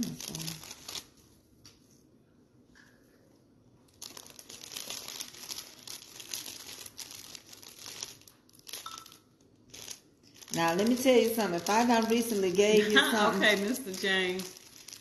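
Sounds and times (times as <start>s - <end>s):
plastic wrapping crinkling: 0.0s - 1.9s, 3.8s - 15.0s.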